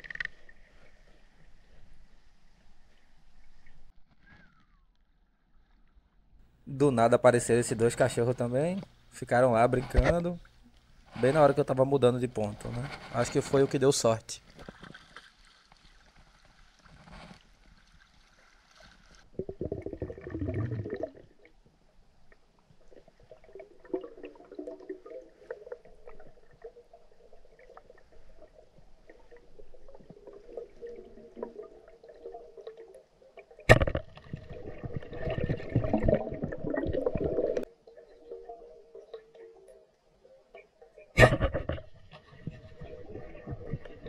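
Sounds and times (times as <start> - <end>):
underwater gurgling and swishing: 14.4 - 44.0
water churning: 23.2 - 39.5.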